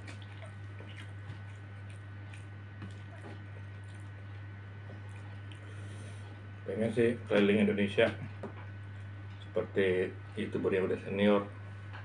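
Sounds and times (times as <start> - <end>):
man chewing: 0.0 - 6.6
fingers working food: 0.0 - 9.6
steady low hum: 0.0 - 12.0.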